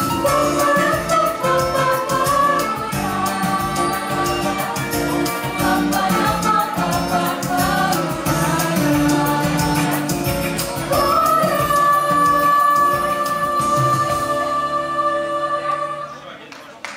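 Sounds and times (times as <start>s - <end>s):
musical accompaniment with beat: 0.0s - 16.0s
vocal ensemble singing: 0.0s - 16.3s.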